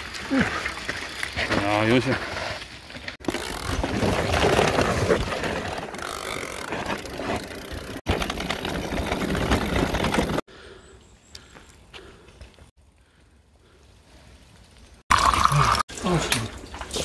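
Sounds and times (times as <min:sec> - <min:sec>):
bike rattling: 0:00.0 - 0:10.4
bike tyres crunching on dirt: 0:00.0 - 0:10.4.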